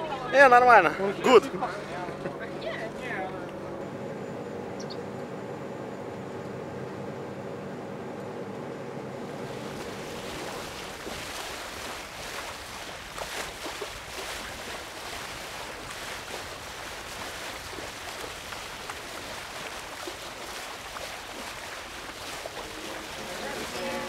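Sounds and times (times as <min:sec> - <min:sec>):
wind: 0:00.0 - 0:24.0
sea water rushing and splashing: 0:09.2 - 0:24.0.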